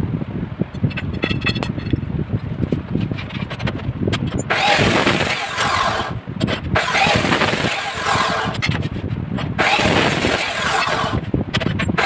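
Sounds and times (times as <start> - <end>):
chop saw grinding through steel: 4.4 - 8.8, 9.5 - 12.0.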